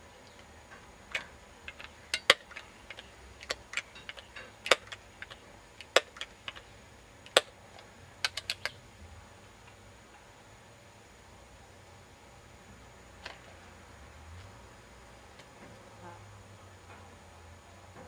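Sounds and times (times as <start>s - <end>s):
air pistol clicks and clacks: 1.1s - 6.7s, 7.3s - 8.8s.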